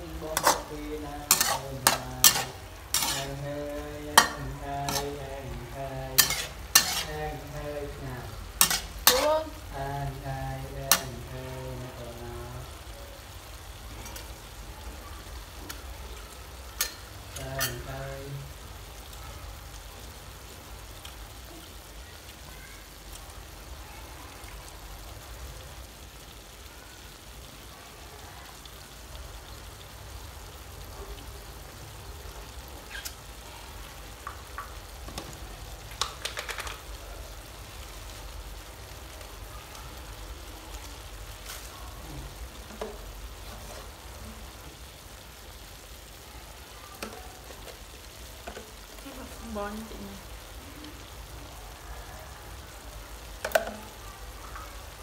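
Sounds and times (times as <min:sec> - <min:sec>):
food sizzling in a wok: 0:00.0 - 0:55.0
sharp pops and clicks: 0:35.9 - 0:36.8.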